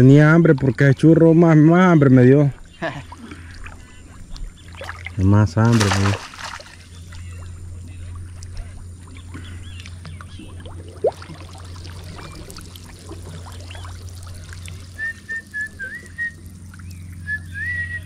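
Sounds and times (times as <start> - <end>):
steady low hum: 0.0 - 18.0
faint chirps and clicks: 2.7 - 5.2, 6.6 - 10.6, 13.5 - 18.0
person whistling: 15.0 - 16.4, 17.2 - 18.0.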